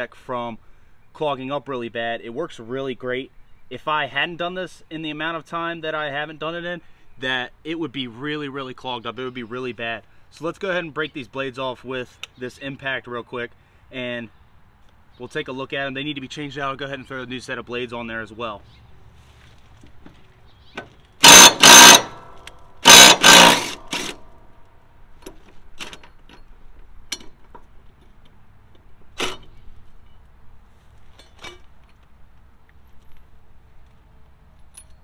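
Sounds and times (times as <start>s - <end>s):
impact driver hammering: 21.2s - 24.3s.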